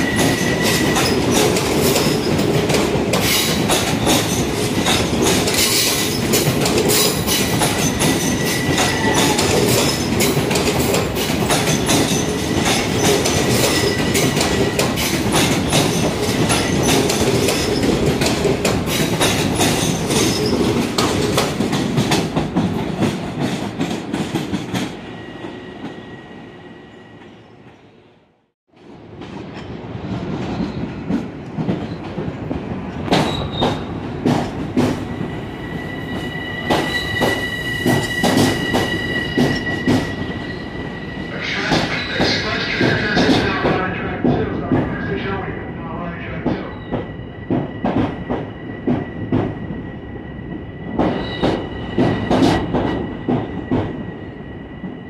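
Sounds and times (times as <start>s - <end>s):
train wheels clicking over rail joints: 0.0s - 25.0s, 28.7s - 35.3s, 36.1s - 40.2s, 46.9s - 49.7s, 50.9s - 54.0s.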